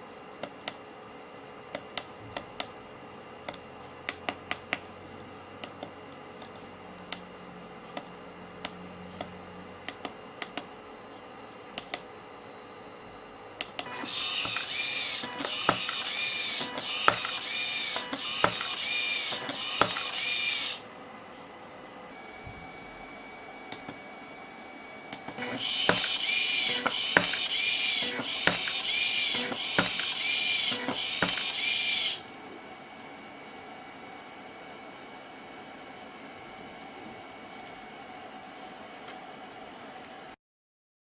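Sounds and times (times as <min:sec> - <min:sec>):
stepper motor whining: 0:13.8 - 0:20.8, 0:25.0 - 0:32.2.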